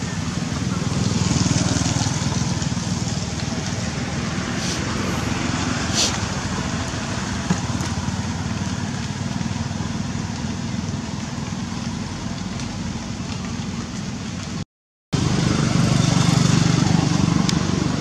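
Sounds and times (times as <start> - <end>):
engine running with low rumble: 0.0 - 14.6, 15.2 - 18.0
brief hiss: 4.6 - 4.9, 5.9 - 6.2.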